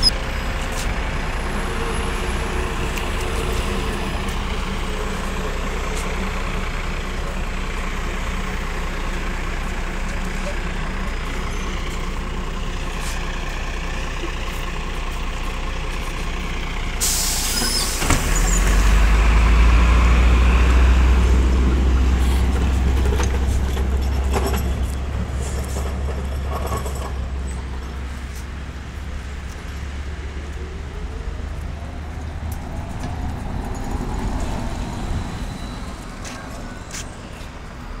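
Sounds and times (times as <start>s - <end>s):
diesel bus engine rumbling: 0.0s - 38.0s
bus air brakes hissing: 17.0s - 18.8s.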